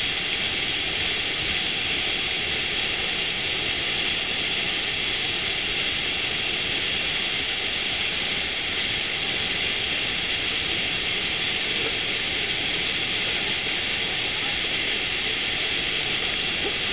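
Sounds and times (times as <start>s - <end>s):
rushing water sheet: 0.0s - 16.9s.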